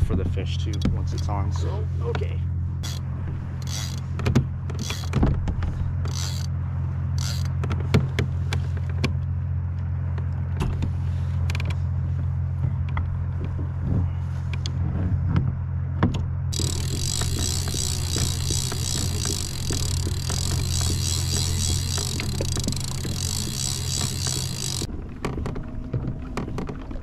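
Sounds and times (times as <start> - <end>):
steady low hum: 0.0 - 25.2
tackle clicks and knocks: 16.0 - 25.6.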